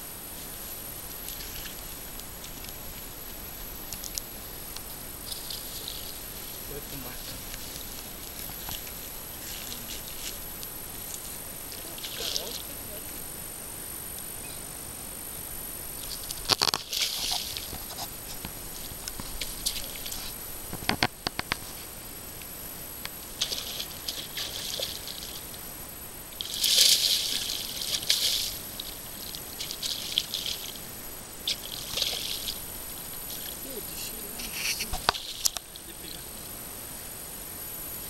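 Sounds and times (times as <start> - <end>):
fish splashing in water: 16.0 - 18.0, 18.8 - 20.4, 23.3 - 25.6, 26.3 - 33.7.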